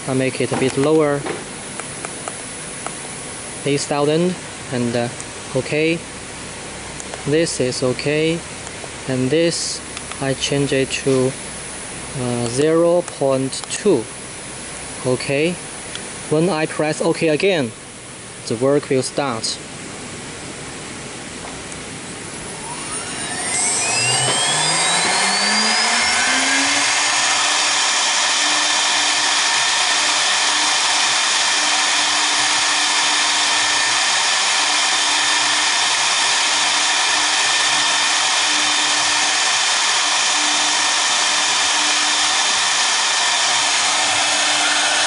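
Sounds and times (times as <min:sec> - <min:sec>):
router spindle motors whining: 0:22.4 - 0:45.0
router bits engraving hiss: 0:22.6 - 0:45.0.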